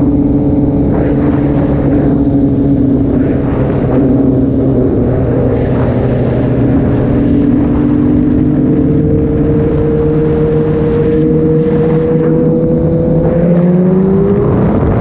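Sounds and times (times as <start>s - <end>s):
motorcycle engine running: 0.0s - 15.0s
wind rush: 0.0s - 15.0s.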